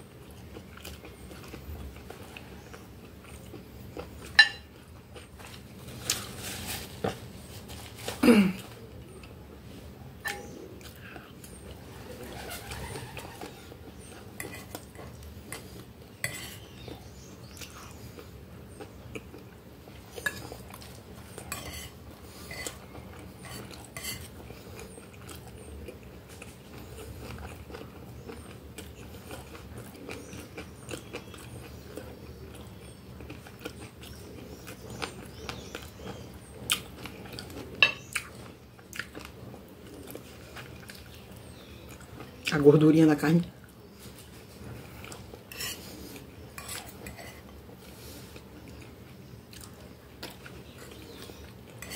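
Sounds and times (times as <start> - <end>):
chewing: 0.1 - 6.4, 10.2 - 42.5, 43.6 - 51.9
fork clicking and scraping on plate: 14.4 - 16.6, 21.4 - 24.3, 46.5 - 47.5.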